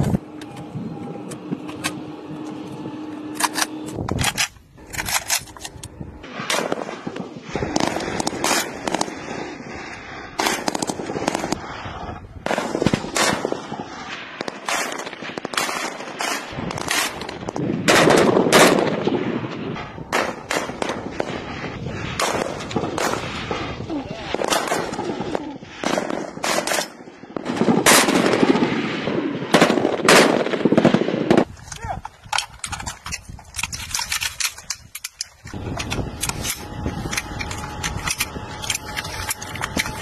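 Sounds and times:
rifle shots: 3.2s - 9.7s, 10.3s - 11.7s, 12.4s - 31.5s.

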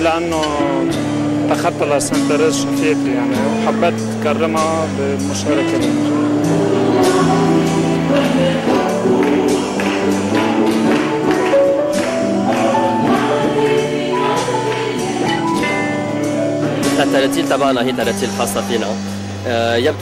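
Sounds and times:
percussion hits: 0.0s - 19.3s
acoustic guitars: 0.0s - 20.0s
choir singing a hymn: 5.4s - 19.0s.

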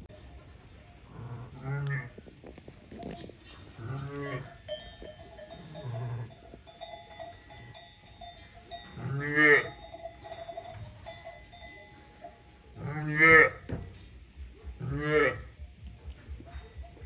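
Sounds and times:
sheep bell clinking: 4.4s - 13.7s, 15.6s - 17.0s
sheep bleating: 12.8s - 13.7s, 14.8s - 15.5s.

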